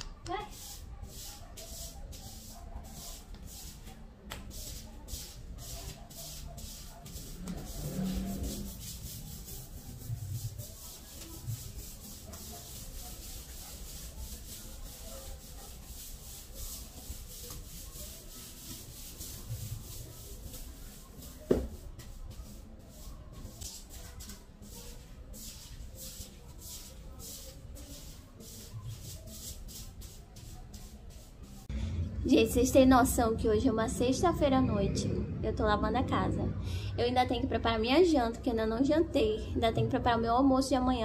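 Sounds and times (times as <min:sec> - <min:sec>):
broom sweeping tile floor: 0:00.2 - 0:31.7.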